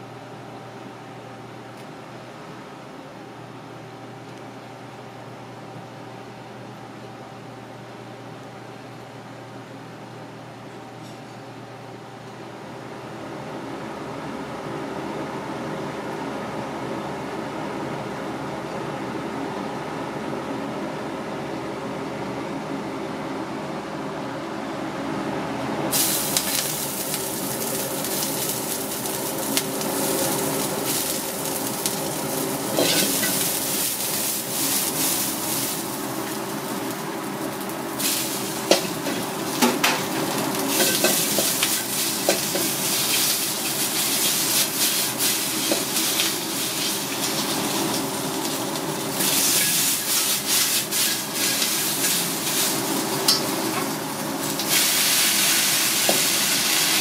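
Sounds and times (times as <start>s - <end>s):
food sizzling in hot oil: 25.9s - 57.0s
chopsticks scraping a wok: 32.7s - 35.6s, 49.2s - 53.4s.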